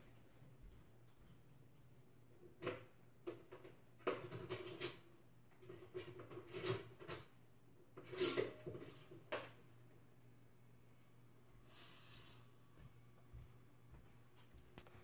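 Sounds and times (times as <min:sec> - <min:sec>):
faint steady hum: 0:00.0 - 0:15.0
kitchen items clattering: 0:02.6 - 0:07.4, 0:08.0 - 0:09.6.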